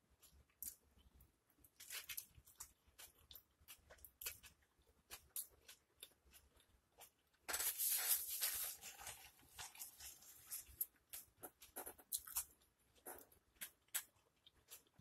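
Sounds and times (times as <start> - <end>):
close chewing with mouth clicks: 0.1 - 7.5, 8.8 - 15.0.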